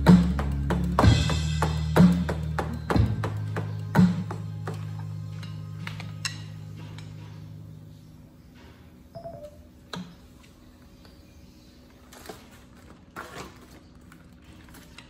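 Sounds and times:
paper rustling: 0:11.9 - 0:15.0.

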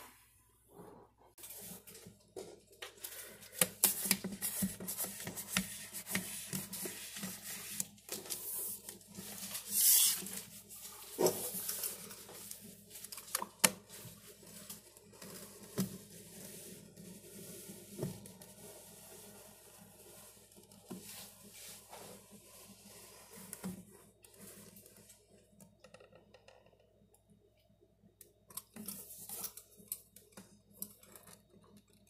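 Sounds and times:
contact paper crackling and rustling: 0:01.4 - 0:25.3.

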